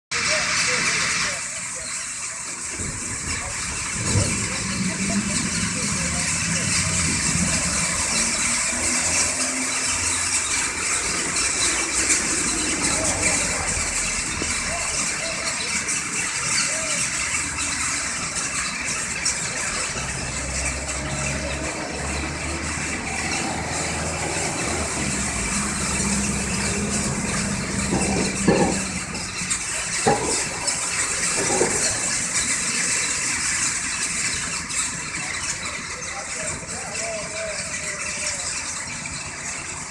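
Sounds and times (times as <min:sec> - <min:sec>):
flock of small birds chattering: 0:00.1 - 0:39.9
low engine hum: 0:03.0 - 0:15.3, 0:18.0 - 0:35.1
sharp knocks: 0:27.0 - 0:32.1.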